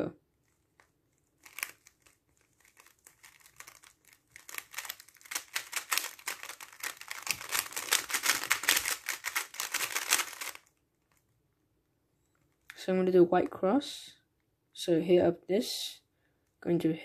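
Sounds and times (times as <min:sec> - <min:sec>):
plastic puzzle cube clicking: 0:00.8 - 0:11.2.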